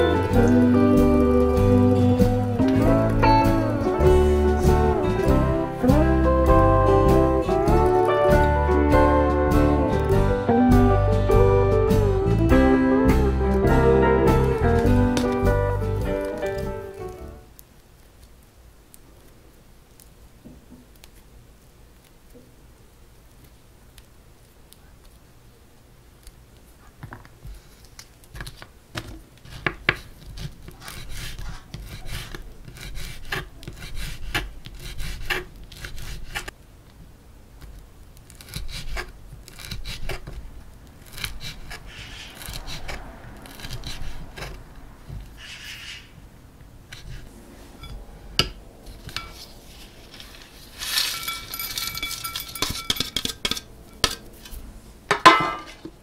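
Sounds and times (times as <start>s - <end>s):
glassy ringing scrape: 47.8s - 48.0s, 49.0s - 49.5s, 50.1s - 54.2s.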